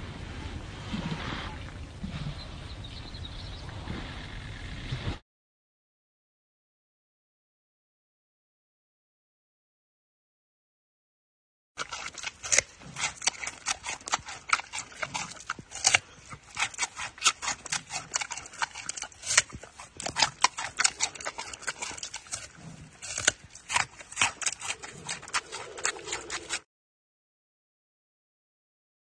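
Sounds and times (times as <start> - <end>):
panda crunching raw carrot: 11.8 - 26.6.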